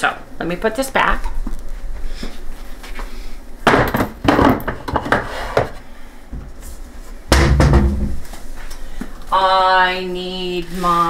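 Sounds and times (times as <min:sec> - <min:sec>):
heavy thump: 0:07.3 - 0:08.2
plastic canister knocking on shelf: 0:07.3 - 0:08.2.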